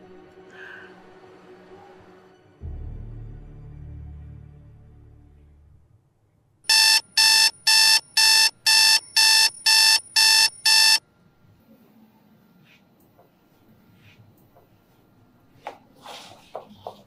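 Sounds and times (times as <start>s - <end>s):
alarm beeping: 6.7s - 11.0s.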